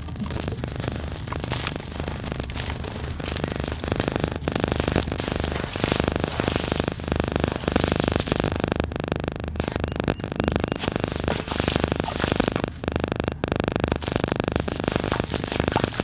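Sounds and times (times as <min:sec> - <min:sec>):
hands squelching wet sand and cement: 0:00.0 - 0:04.1
muddy water splashing: 0:00.0 - 0:06.7.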